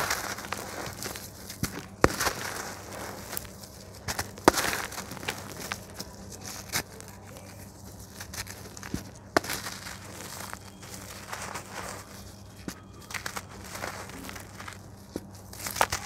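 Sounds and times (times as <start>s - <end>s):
sharp cracks: 0.0s - 7.1s
dry dirt crumbling between hands: 0.0s - 16.0s.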